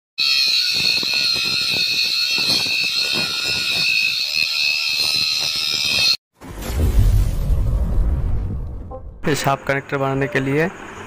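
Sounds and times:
angle grinder cutting metal: 0.2s - 6.2s.

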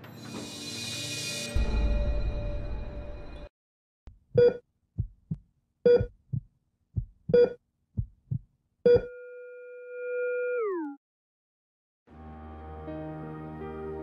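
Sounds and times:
low heartbeat thuds: 4.3s - 9.1s
heart monitor beeps: 4.4s - 4.6s, 5.9s - 6.2s, 7.3s - 7.6s, 8.9s - 9.4s.

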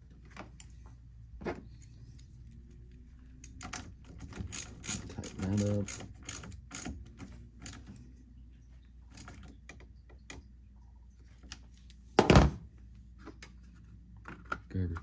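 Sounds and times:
hand ratchet clicking: 4.2s - 7.0s.

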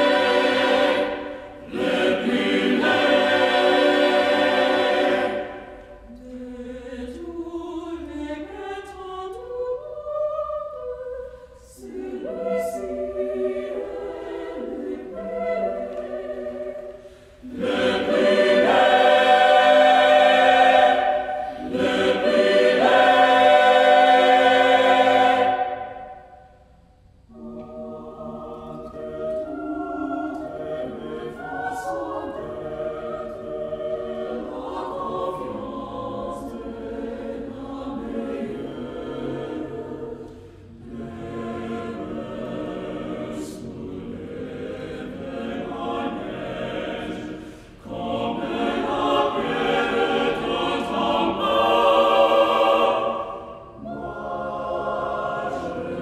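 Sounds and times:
choir singing a cappella: 0.0s - 56.0s
singers breathing: 11.2s - 11.7s, 16.9s - 17.5s, 21.2s - 21.7s, 40.2s - 40.8s, 47.3s - 47.9s.

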